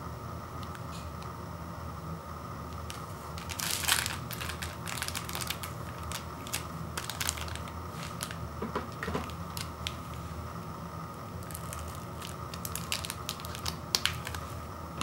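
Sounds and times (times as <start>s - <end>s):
foil sachets crinkling: 2.8s - 10.3s, 11.4s - 14.6s.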